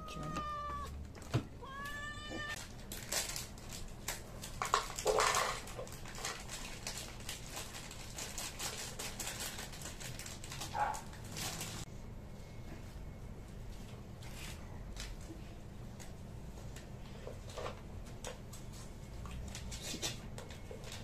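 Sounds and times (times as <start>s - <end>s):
cat meowing: 0.0s - 1.0s, 1.6s - 2.6s
cat food rattling into plastic bowl: 4.5s - 11.8s.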